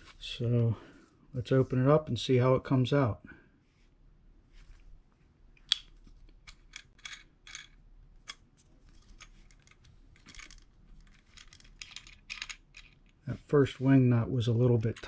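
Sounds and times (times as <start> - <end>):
small metallic clicks and scrapes: 6.2 - 13.2.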